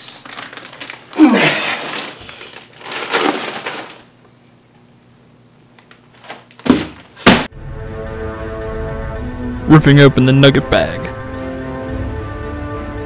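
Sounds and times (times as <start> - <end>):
plastic bag crinkling: 0.0 - 4.2
person shouting: 1.2 - 1.8.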